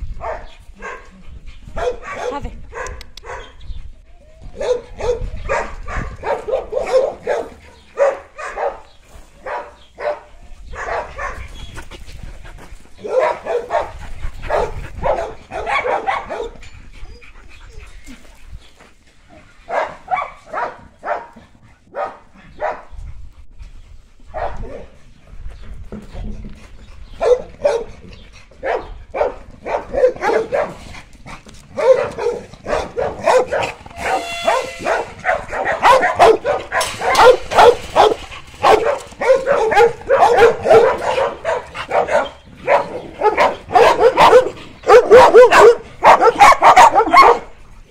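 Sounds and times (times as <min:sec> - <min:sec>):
dogs barking and yipping: 0:00.0 - 0:18.4, 0:19.3 - 0:23.1, 0:24.3 - 0:25.0, 0:27.0 - 0:47.9
dog drawn-out cry: 0:31.8 - 0:47.5.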